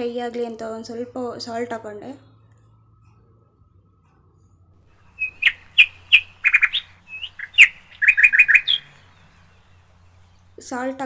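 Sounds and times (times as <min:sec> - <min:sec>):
bird chirping: 0:04.9 - 0:11.0.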